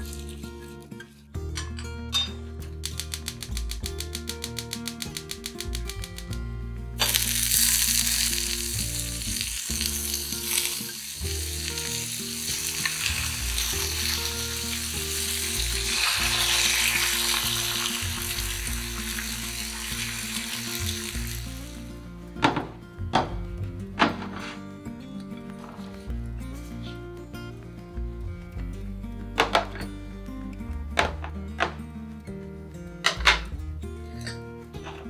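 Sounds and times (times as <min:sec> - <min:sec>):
soft background music: 0:00.0 - 0:35.0
bacon and eggs sizzling: 0:07.0 - 0:21.9.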